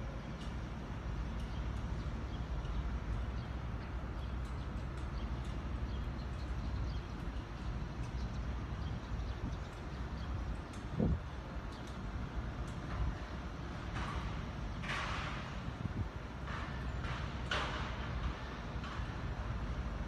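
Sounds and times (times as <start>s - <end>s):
small birds chirping: 1.3s - 12.3s.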